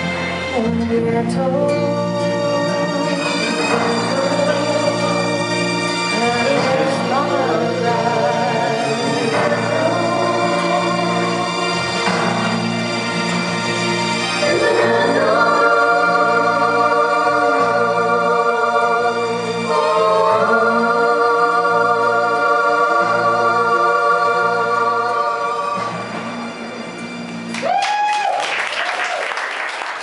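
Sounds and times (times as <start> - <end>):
backing music with bass: 0.0 - 27.8
man and woman singing duet: 0.5 - 12.4, 14.4 - 26.1
audience clapping: 27.3 - 30.0
person whooping: 27.6 - 29.4.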